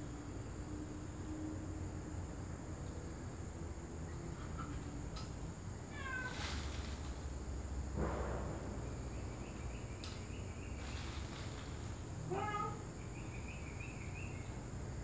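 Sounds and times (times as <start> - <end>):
cat meowing: 5.9 - 6.4, 12.3 - 12.8.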